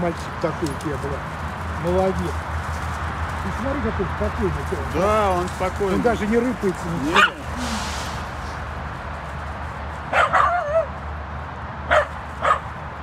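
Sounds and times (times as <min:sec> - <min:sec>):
dog yipping: 0:07.1 - 0:07.5, 0:10.1 - 0:11.0, 0:11.9 - 0:12.7.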